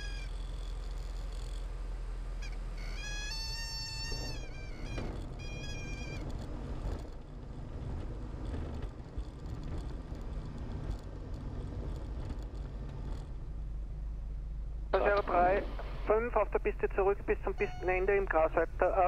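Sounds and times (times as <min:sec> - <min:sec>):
aircraft engine rumble: 0:00.0 - 0:19.0
high warning tone: 0:15.0 - 0:19.0.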